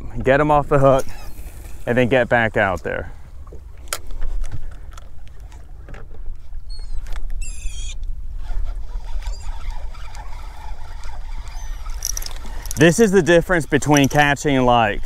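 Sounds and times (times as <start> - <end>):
wind rumbling on microphone: 3.1 - 15.0
bird wavering calls: 6.7 - 8.0, 9.0 - 12.7
choppy water: 8.3 - 15.0
fishing reel clicks: 9.2 - 14.7.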